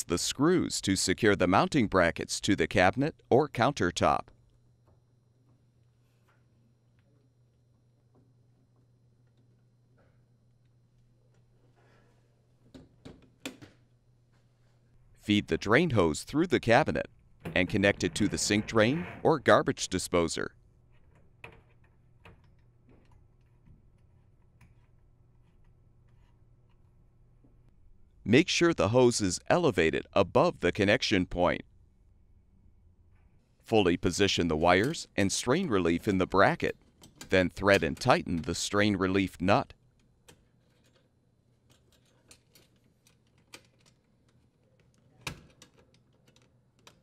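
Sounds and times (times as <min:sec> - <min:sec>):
metal parts clicking and tapping: 0:40.0 - 0:47.0.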